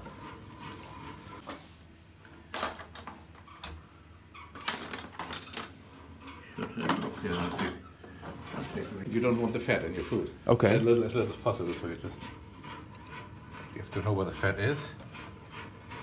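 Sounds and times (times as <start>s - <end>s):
cutlery clinking in drawer: 6.8s - 7.8s.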